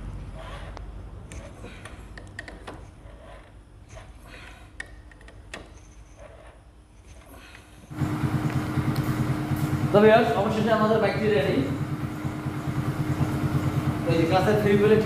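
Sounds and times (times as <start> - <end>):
motorcycle engine running: 7.9 - 15.0.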